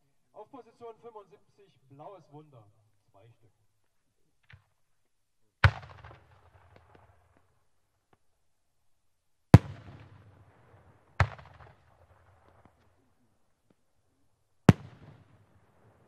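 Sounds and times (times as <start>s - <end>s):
firework bangs with rumbling echo: 5.6s - 7.3s, 9.6s - 12.8s, 14.7s - 16.0s.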